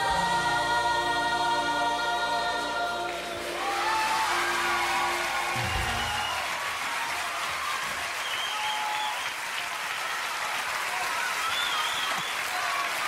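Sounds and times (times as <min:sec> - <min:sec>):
audience applauding: 0:03.0 - 0:13.0.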